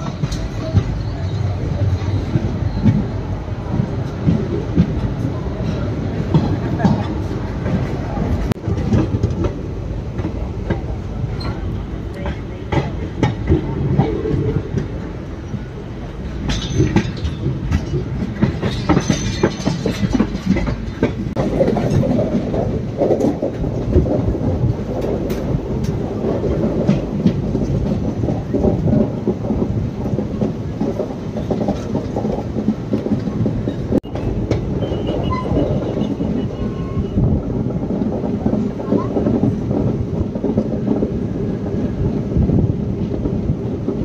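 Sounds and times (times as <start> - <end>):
train wheels clattering on rails: 0.0 - 44.0
high wheel squeals: 34.2 - 37.3.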